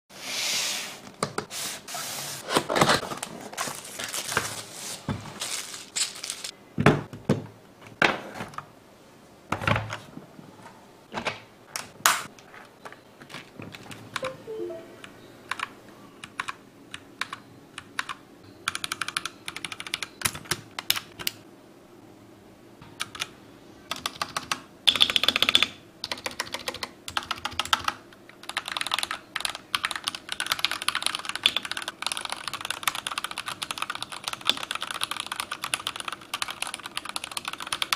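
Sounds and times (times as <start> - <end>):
mechanical keyboard typing: 15.5 - 21.4, 23.0 - 23.3, 23.9 - 37.9.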